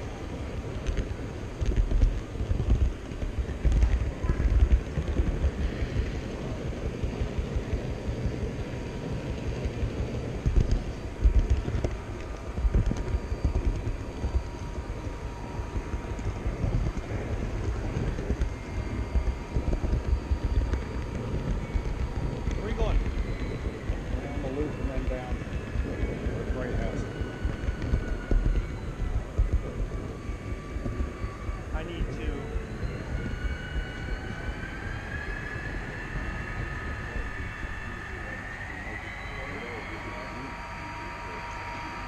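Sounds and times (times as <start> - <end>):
murmur of chatter: 15.0 - 42.0.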